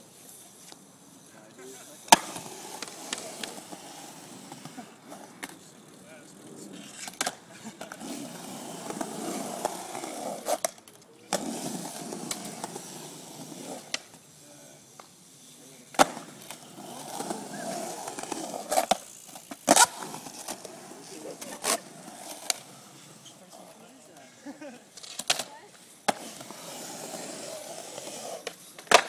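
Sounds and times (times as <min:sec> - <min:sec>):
skateboard wheels rolling on concrete: 0:00.0 - 0:29.0
skateboard clacking on concrete: 0:02.1 - 0:03.7, 0:25.0 - 0:25.5, 0:28.3 - 0:29.0.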